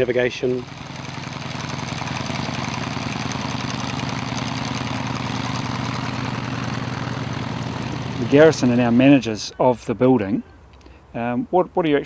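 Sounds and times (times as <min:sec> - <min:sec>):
propeller aircraft engines droning: 0:00.0 - 0:09.6.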